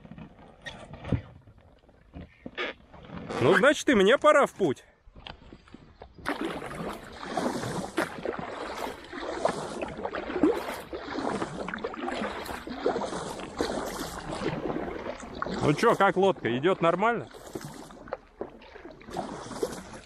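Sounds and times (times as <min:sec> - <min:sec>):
paddle strokes splashing: 0:00.0 - 0:20.0
water trickling and gurgling: 0:05.2 - 0:20.0.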